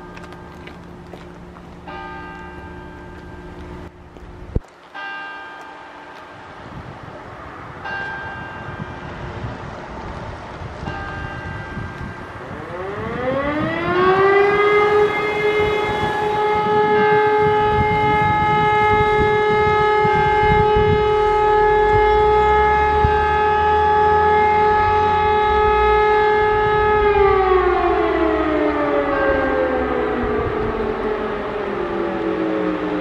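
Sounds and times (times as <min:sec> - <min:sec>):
electric siren winding: 0:12.5 - 0:33.0.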